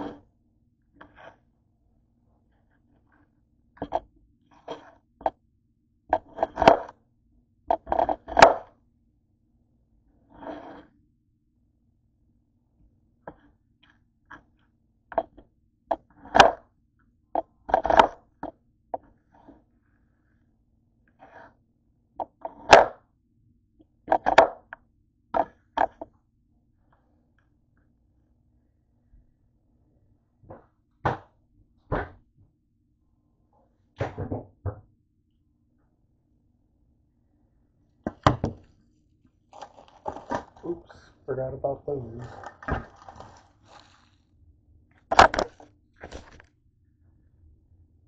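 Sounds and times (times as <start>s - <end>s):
cucumber slices knocking and scraping: 7.7s - 8.7s, 39.5s - 40.8s, 42.2s - 44.0s.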